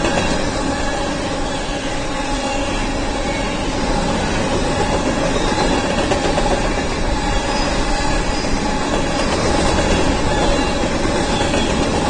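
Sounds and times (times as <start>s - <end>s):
freight train wheels rumbling on track: 0.0s - 12.0s.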